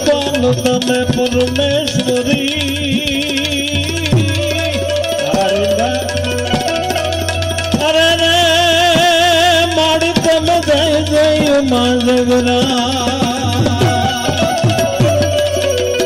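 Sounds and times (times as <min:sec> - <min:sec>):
man singing with vibrato: 0:00.0 - 0:16.0
tabla strokes: 0:00.0 - 0:16.0.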